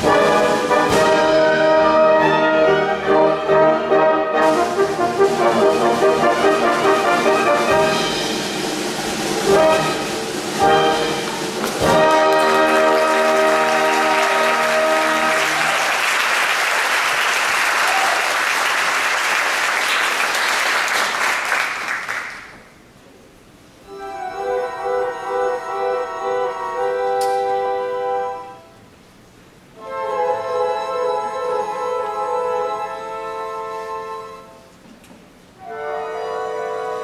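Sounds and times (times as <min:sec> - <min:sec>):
orchestra playing brass chords: 0:00.0 - 0:17.3, 0:23.8 - 0:34.8, 0:35.6 - 0:37.0
audience applauding: 0:11.2 - 0:22.7.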